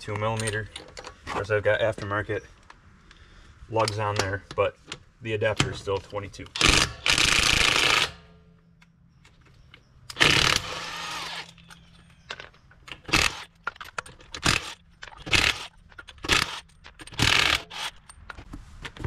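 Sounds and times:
impact wrench burst: 0:06.6 - 0:08.3, 0:10.1 - 0:11.6, 0:13.1 - 0:13.5, 0:14.4 - 0:18.0.

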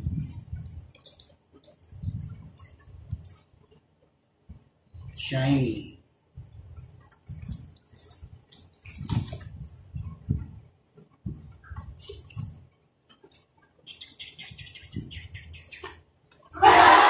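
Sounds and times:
handling knocks and rustles: 0:07.0 - 0:13.6.

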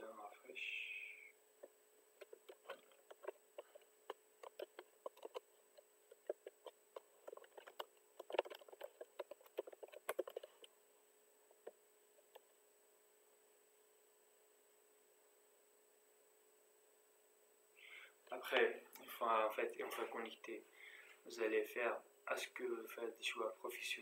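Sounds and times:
keyboard typing clicks: 0:02.2 - 0:05.4, 0:06.1 - 0:10.7.

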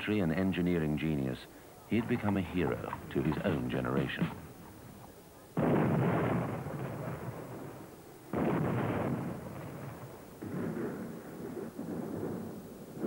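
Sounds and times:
artillery fire booms: 0:05.6 - 0:13.0.

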